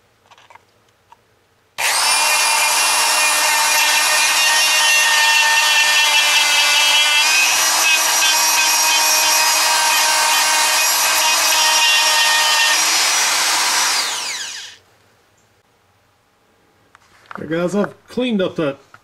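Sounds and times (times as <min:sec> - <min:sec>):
rotary tool sanding metal: 0:01.8 - 0:14.8.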